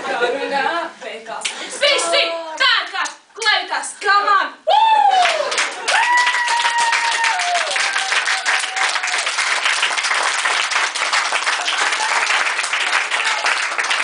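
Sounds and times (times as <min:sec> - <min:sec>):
audience applauding: 0:05.1 - 0:14.0.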